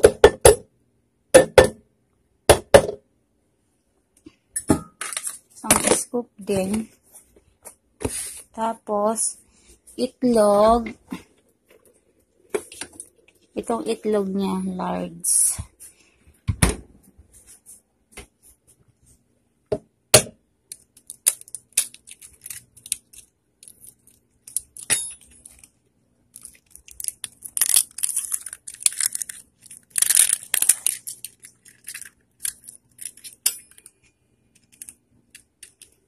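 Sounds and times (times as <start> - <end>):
crackly rustling: 20.8 - 36.0.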